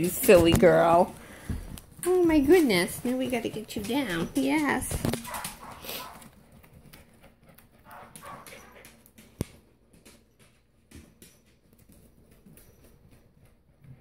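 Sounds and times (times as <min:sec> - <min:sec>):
dog claws ticking on hardwood floor: 0:00.0 - 0:14.0.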